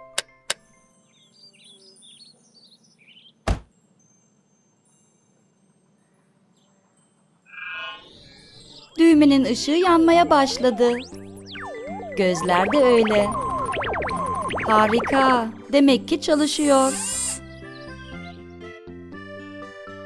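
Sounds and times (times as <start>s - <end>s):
twinkling chime-like chirps: 0.7s - 15.3s
short electronic whirr: 16.4s - 17.4s.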